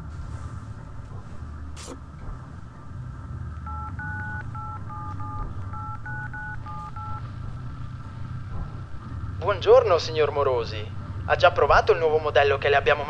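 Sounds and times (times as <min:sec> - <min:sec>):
low steady hum: 0:00.0 - 0:13.0
phone keypad dual-tone beeps: 0:03.7 - 0:07.2.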